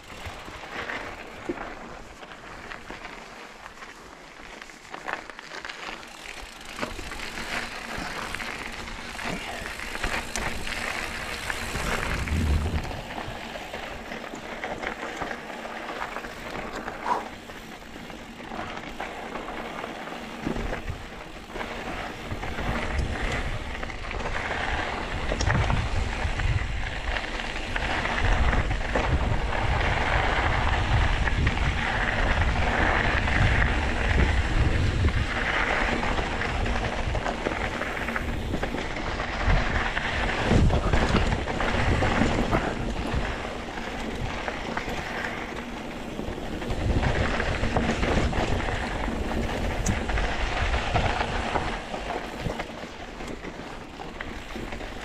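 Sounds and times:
bike tyres rattling over dirt: 0.0s - 55.0s
low rumble: 11.6s - 13.4s.

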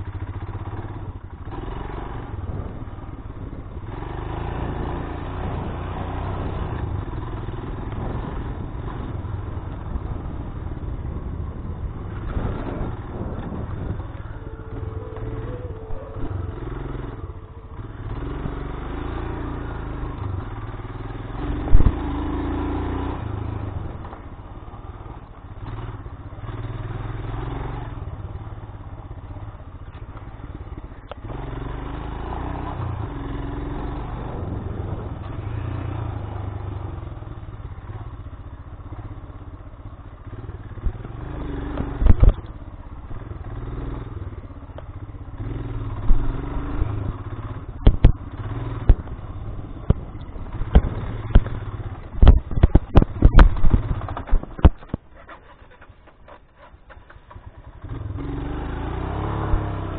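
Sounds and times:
motorcycle engine running: 0.0s - 59.9s
motorcycle rattling over rough ground: 0.0s - 59.9s
sharp knocks over bumps: 41.7s - 42.5s, 47.8s - 57.6s.

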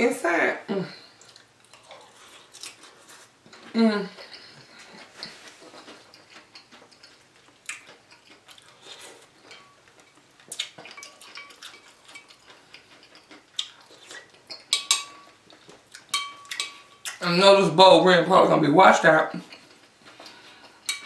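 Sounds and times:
spoon clinking against glass bowl: 14.5s - 15.3s, 16.1s - 17.0s.

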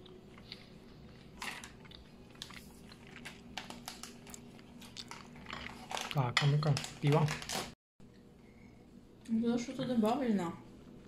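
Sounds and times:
person chewing pizza: 0.0s - 7.1s.

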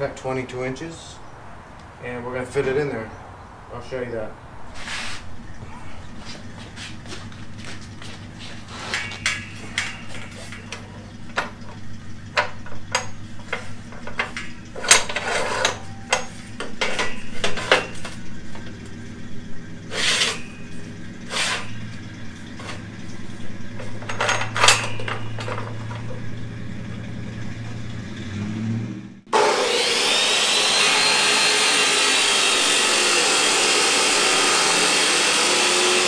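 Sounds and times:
steady low hum: 4.3s - 29.3s
metal clanks and rattles: 7.8s - 28.1s.

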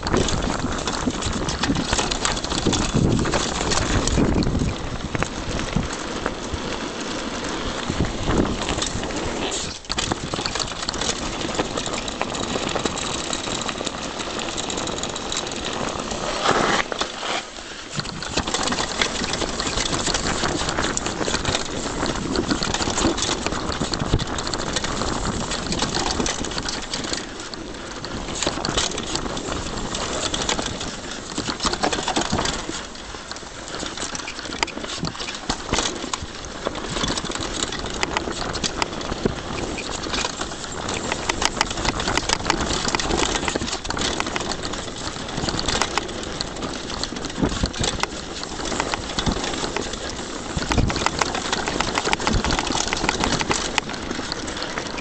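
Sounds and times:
wind noise on microphone: 0.0s - 17.1s, 17.9s - 55.0s
bike clattering and rattling: 0.0s - 55.0s
tyres rumbling over dirt and gravel: 0.0s - 55.0s.

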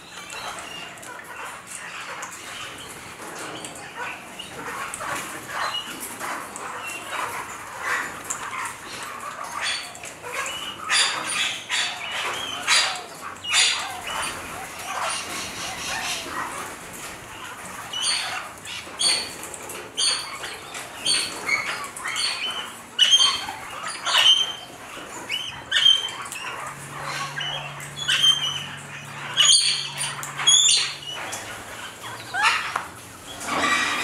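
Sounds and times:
parrots calling shrilly: 9.3s - 16.6s, 20.0s - 34.0s.

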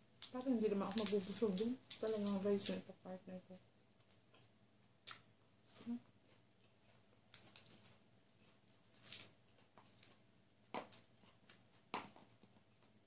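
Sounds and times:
chewing and food crunches: 0.2s - 2.8s, 4.0s - 13.0s.

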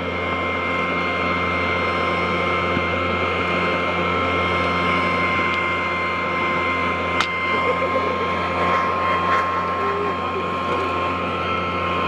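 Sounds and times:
toy electric motor humming: 7.2s - 11.8s.

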